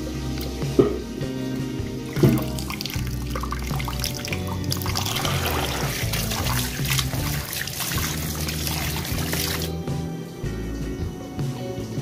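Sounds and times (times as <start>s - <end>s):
background music: 0.0s - 12.0s
tap water splashing: 2.0s - 9.7s.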